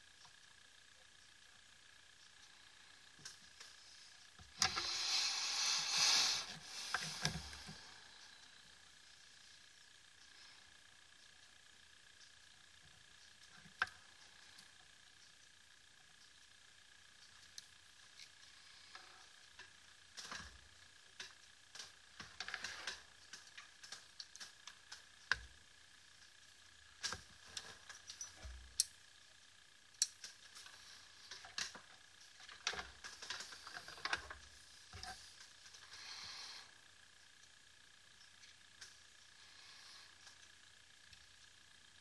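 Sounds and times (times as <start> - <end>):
faint high whine: 0.0 - 42.0
brief hiss: 4.7 - 7.3.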